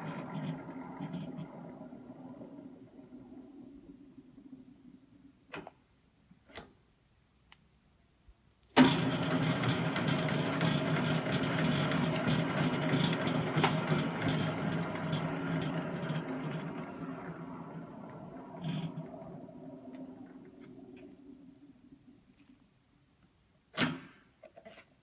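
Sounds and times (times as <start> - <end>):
mixer whirring with light ticking: 0.0 - 4.3, 8.9 - 21.2.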